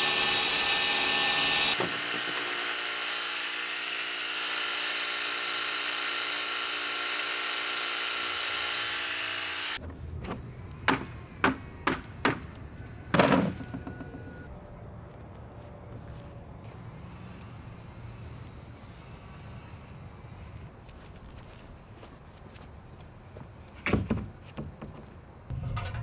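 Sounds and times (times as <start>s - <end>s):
quiet outdoor background: 1.8s - 26.0s
sharp knocks and thunks: 9.8s - 12.5s, 23.8s - 26.0s.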